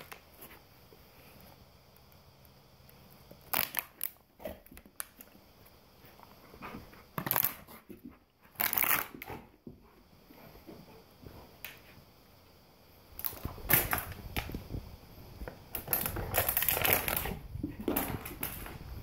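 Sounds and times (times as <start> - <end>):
plastic bottle crunching in dog's jaws: 3.4 - 5.2, 7.2 - 7.8, 8.5 - 9.4, 13.2 - 14.6, 15.4 - 18.8.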